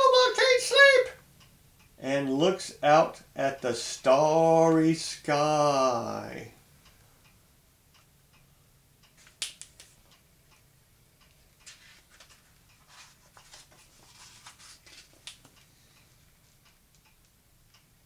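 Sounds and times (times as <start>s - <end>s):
page turning rustle: 11.6s - 15.5s.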